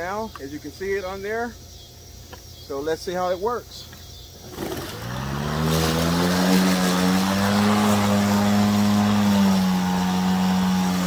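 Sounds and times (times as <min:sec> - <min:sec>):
electric lawn mower motor humming: 0:04.4 - 0:11.0.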